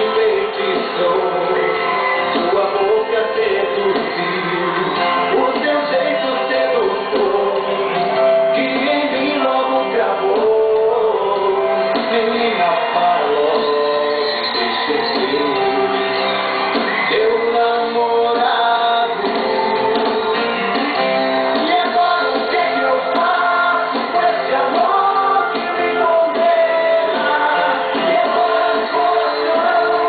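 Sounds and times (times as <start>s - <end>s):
man singing: 0.0s - 16.2s, 16.8s - 30.0s
song backing track: 0.0s - 30.0s.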